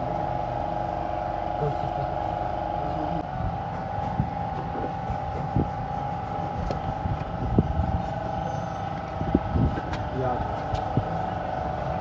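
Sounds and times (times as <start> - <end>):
engine drone: 0.0 - 12.0.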